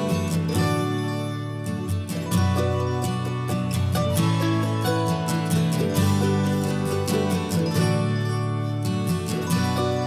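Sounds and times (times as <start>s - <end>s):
country music with acoustic guitar: 0.0s - 10.0s.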